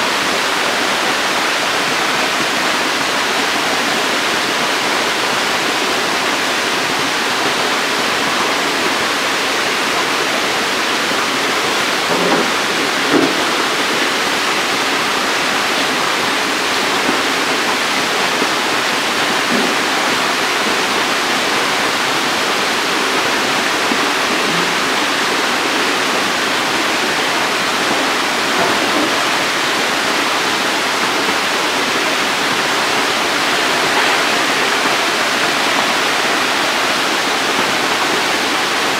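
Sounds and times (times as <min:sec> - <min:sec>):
water spraying and splashing: 0:00.1 - 0:38.9
soft knocks: 0:12.1 - 0:13.6.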